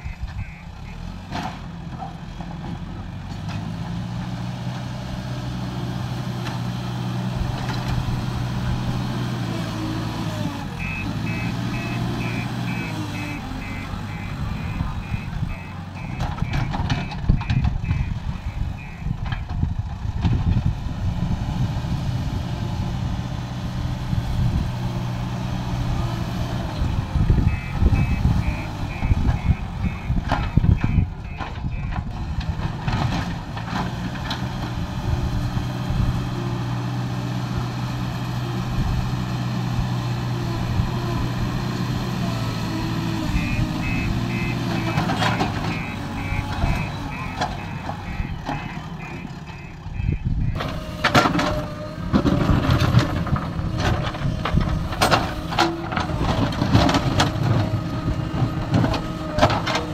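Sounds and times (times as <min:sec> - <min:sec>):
diesel engine running under load: 0:00.0 - 0:59.9
reversing alarm beeps: 0:10.8 - 0:19.2, 0:27.5 - 0:32.0, 0:43.3 - 0:50.6.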